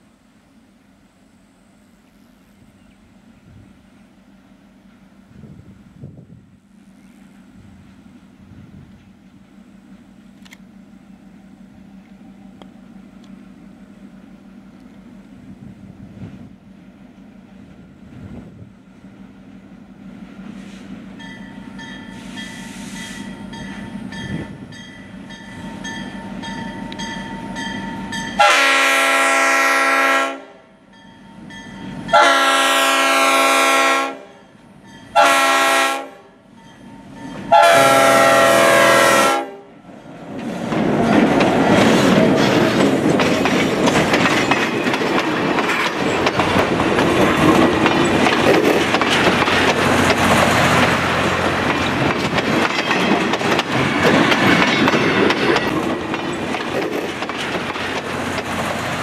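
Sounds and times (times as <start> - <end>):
diesel locomotive engine running: 0.0 - 59.0
train wheels clacking on rails: 18.9 - 28.8, 40.1 - 59.0
locomotive air horn: 22.1 - 23.4, 28.4 - 30.8, 32.1 - 36.4, 37.4 - 39.8.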